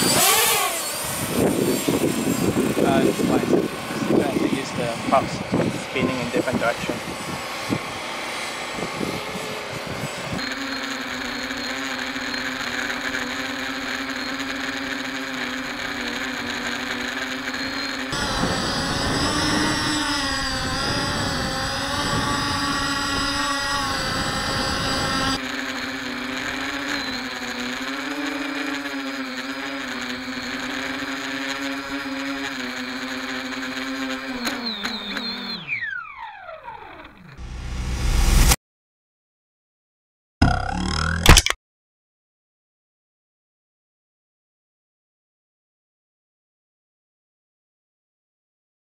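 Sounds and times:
quadcopter motors whining: 0.0s - 38.6s.

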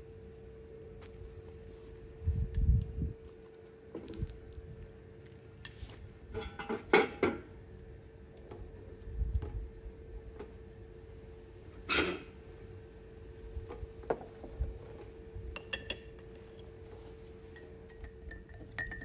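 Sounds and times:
faint steady hum: 0.0s - 19.0s
dishes and utensils clinking: 17.5s - 19.0s.

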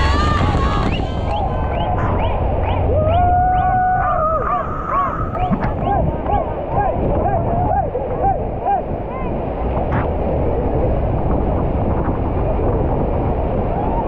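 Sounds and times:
boat engine: 0.0s - 11.2s
whitewater roaring: 0.0s - 14.0s.

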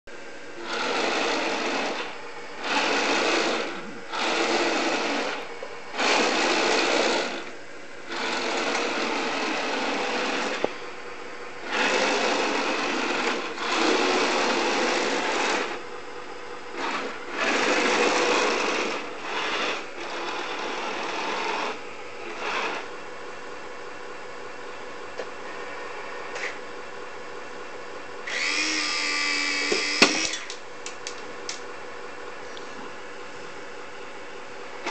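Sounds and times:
electric motors whirring: 0.6s - 10.8s, 11.6s - 15.8s, 16.7s - 23.0s, 28.2s - 31.2s.

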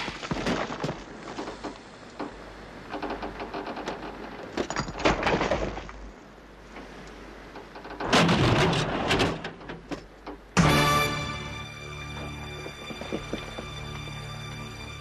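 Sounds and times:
car body creaking and scraping: 0.0s - 10.5s.

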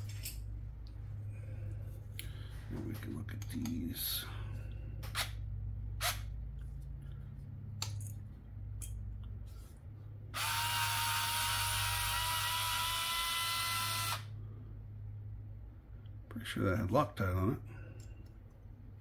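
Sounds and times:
electric screwdriver motor whine: 10.4s - 14.3s.

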